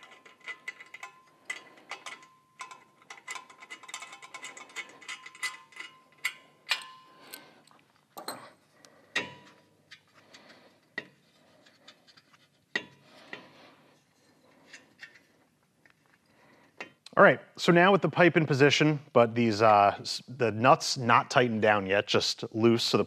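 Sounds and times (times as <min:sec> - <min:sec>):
metallic clicks and clinks: 0:00.0 - 0:08.6.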